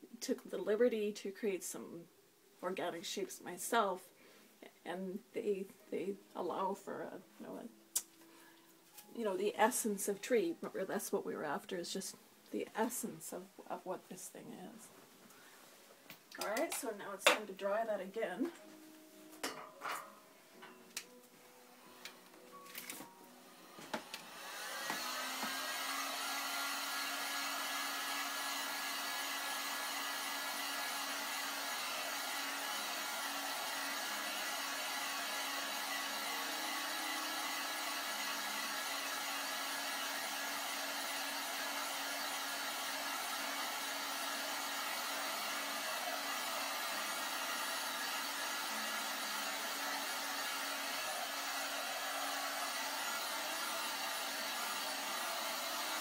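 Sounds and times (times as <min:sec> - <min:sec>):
hair dryer running: 0:16.4 - 0:17.4, 0:22.8 - 0:56.0.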